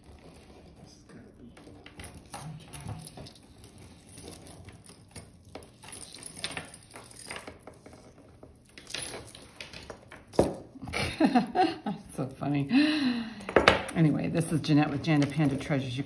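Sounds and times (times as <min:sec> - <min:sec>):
metal chain clicking and rattling: 0:01.6 - 0:10.6.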